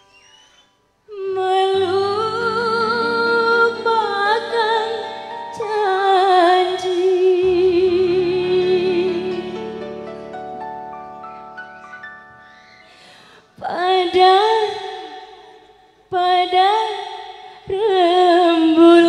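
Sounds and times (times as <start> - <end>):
woman singing with vibrato: 1.1 - 9.9, 13.6 - 15.5, 16.1 - 19.0
sustained band chords: 7.4 - 12.4.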